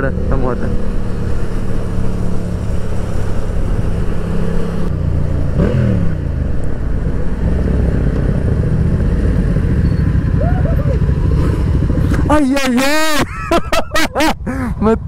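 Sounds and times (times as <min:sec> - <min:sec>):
motorcycle engine cruising: 0:00.0 - 0:13.5
road and wind noise: 0:00.0 - 0:15.0.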